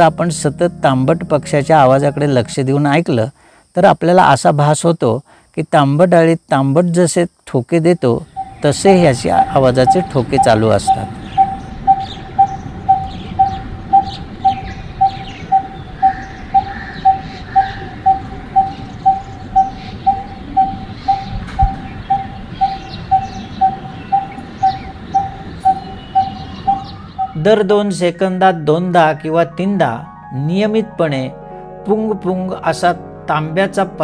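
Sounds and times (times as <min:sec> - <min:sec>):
bird calling hollow notes: 0:08.2 - 0:28.2.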